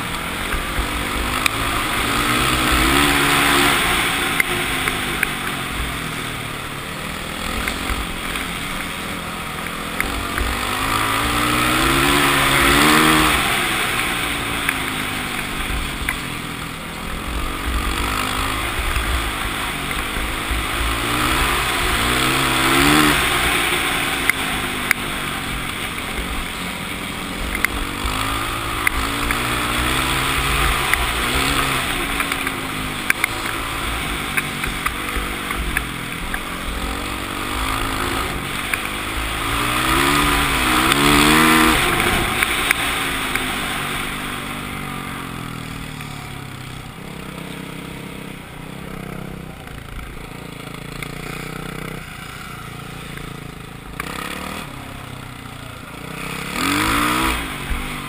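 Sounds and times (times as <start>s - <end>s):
dirt bike engine revving: 0.0s - 58.0s
sharp ticks: 27.4s - 43.6s.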